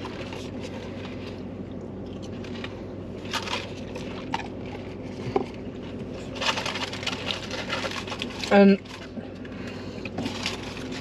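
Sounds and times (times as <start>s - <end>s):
steady low hum: 0.0s - 11.0s
paper wrappers crinkling: 5.8s - 9.2s, 10.1s - 11.0s.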